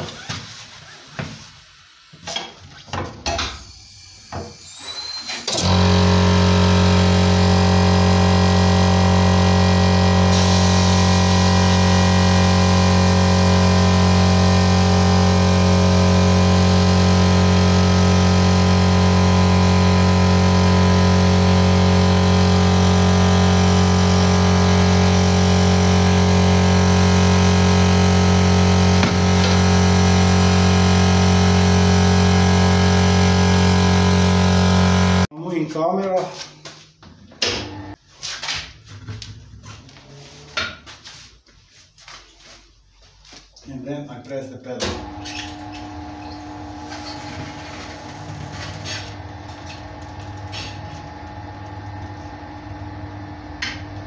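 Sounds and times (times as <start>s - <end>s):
machine motor humming: 5.5s - 35.3s, 44.8s - 54.0s.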